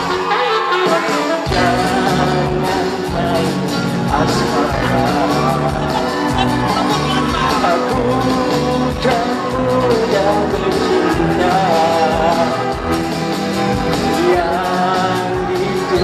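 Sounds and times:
man singing into a microphone: 0.0s - 12.9s, 14.0s - 16.0s
band accompaniment: 0.0s - 16.0s.

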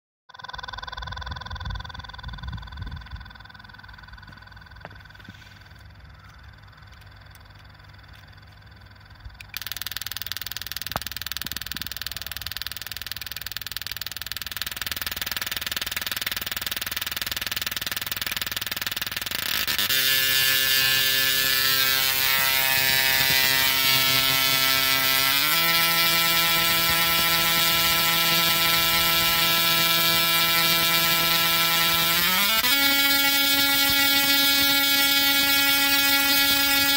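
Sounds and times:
tesla coil hissing: 9.4s - 36.9s
loud electric buzz: 9.5s - 36.9s.

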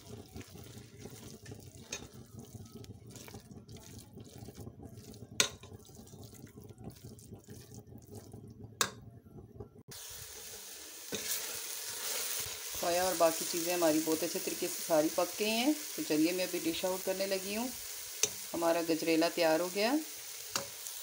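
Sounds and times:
spatula scraping a pan: 0.0s - 8.5s, 10.4s - 12.8s.

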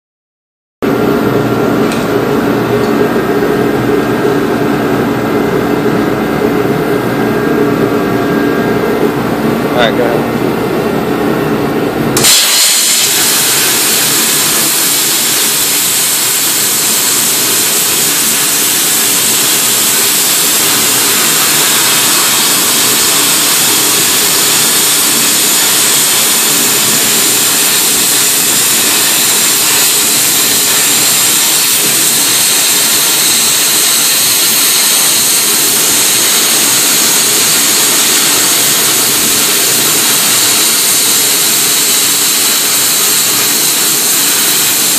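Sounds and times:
plasma cutter hissing: 12.2s - 44.9s.

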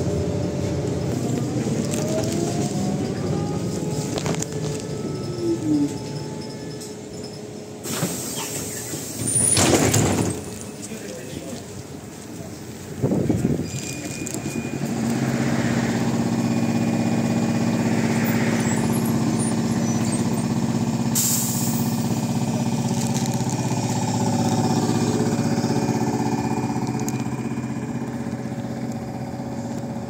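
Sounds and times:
trolleybus equipment humming: 0.0s - 30.0s
trolleybus pulling away: 0.0s - 30.0s
short burst of hiss: 7.8s - 9.3s.

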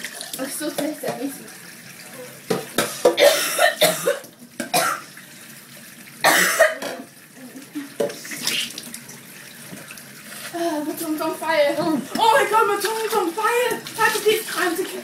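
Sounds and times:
woman coughing and sputtering: 3.1s - 5.0s, 6.2s - 7.1s.

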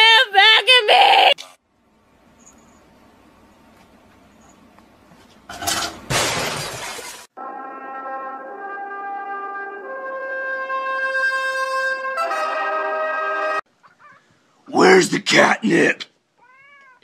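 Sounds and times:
loud crash: 6.1s - 7.3s
music of long held notes: 7.4s - 10.8s.

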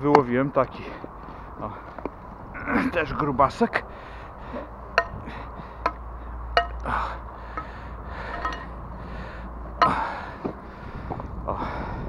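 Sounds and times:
metal rod clinking on concrete: 5.0s - 5.2s, 8.3s - 8.7s.

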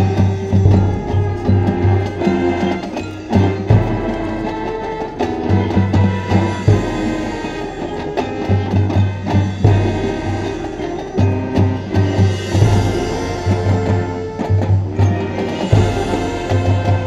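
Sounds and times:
marching band brass: 0.0s - 17.0s
percussion: 0.0s - 17.0s
low drum pulse: 0.4s - 2.5s.

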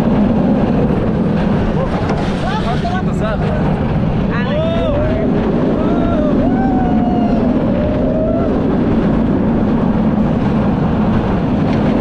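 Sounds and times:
roller coaster track noise: 0.0s - 12.0s
wind rushing: 0.0s - 12.0s
person wavering ooh: 5.8s - 8.7s.

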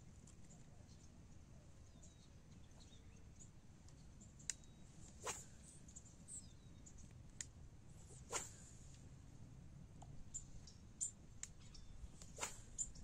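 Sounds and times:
faint high bird chirps: 0.4s - 7.1s, 10.2s - 13.0s.

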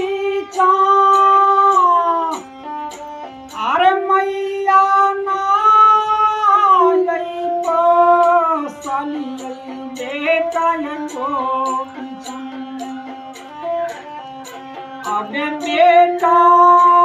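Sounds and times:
woman singing: 0.0s - 2.5s, 3.5s - 13.6s, 15.0s - 17.0s
plucked string instrument: 0.0s - 17.0s.

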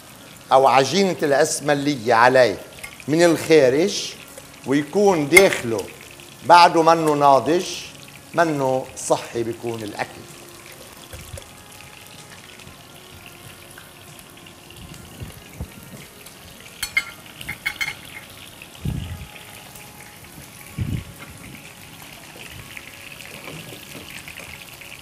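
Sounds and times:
food sizzling in oil: 0.0s - 25.0s
metal tongs clinking on pan: 2.7s - 3.1s, 16.8s - 18.4s.

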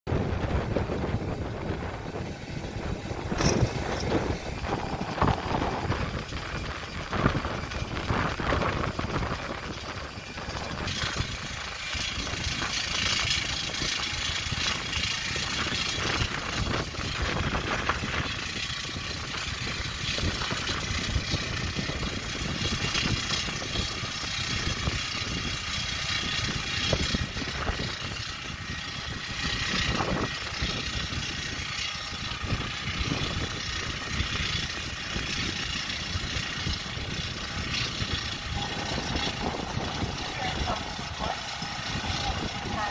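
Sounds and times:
low rumble: 0.1s - 15.1s, 36.4s - 42.9s
jet engine rush and whine: 0.1s - 42.9s.

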